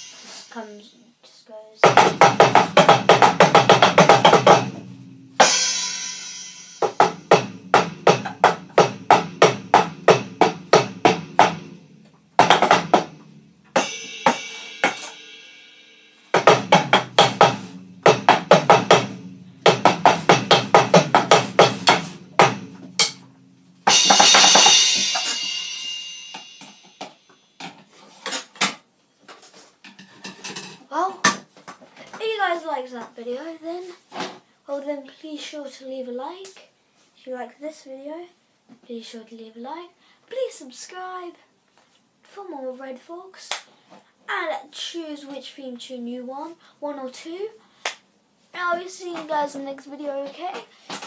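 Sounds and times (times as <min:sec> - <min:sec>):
cymbal crash: 0:00.0 - 0:00.6, 0:04.4 - 0:08.1, 0:12.8 - 0:27.6
electronic drum strokes: 0:00.0 - 0:00.6, 0:02.0 - 0:27.3.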